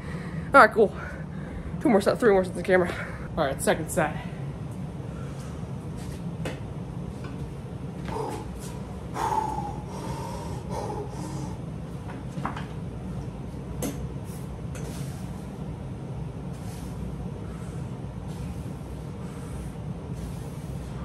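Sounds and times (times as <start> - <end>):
steady low hum: 0.0 - 21.0
man breathing hard and exhaling: 8.0 - 11.8, 16.5 - 21.0.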